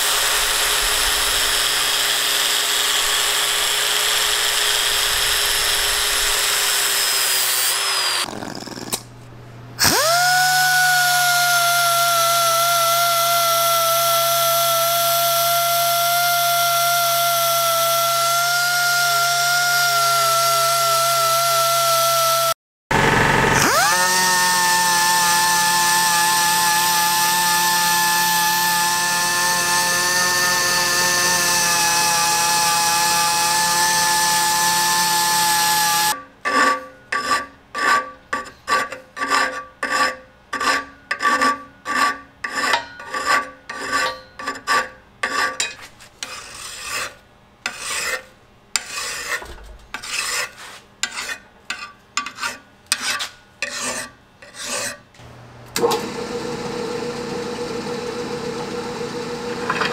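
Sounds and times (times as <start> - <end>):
power tool whining: 0.0 - 9.0, 9.8 - 36.2, 55.2 - 59.9
hand file rasping: 35.8 - 55.0.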